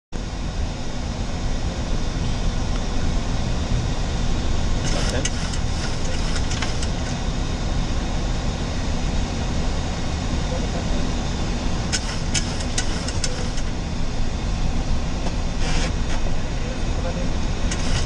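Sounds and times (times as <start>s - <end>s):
airflow and engine rumble: 0.2s - 18.0s
sharp clicks: 11.9s - 13.7s.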